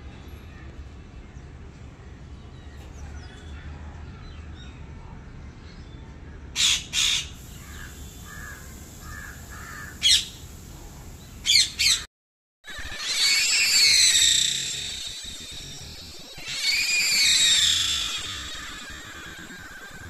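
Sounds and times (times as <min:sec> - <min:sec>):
parakeets screeching: 0:06.6 - 0:10.6, 0:11.4 - 0:12.1, 0:12.7 - 0:20.0
parakeets chattering: 0:06.6 - 0:12.1, 0:12.7 - 0:20.0.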